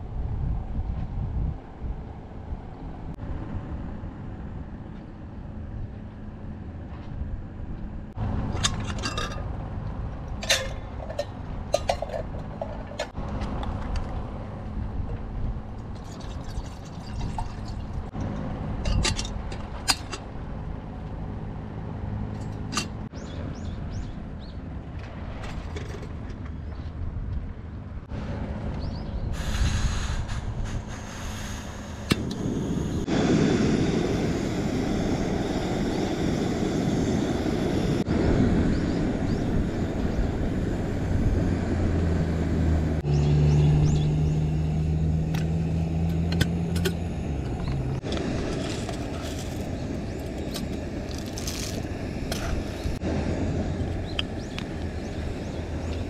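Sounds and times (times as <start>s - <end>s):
wind buffeting microphone: 0.0s - 6.1s, 7.1s - 20.9s, 22.6s - 56.0s
metal camping gear clicking: 10.3s - 14.0s, 46.1s - 52.8s
steady low hum: 30.4s - 56.0s.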